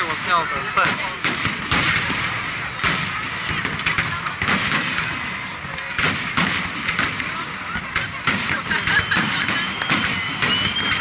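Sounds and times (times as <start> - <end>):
firework booms: 0.1 - 11.0
small firework pops: 5.7 - 11.0.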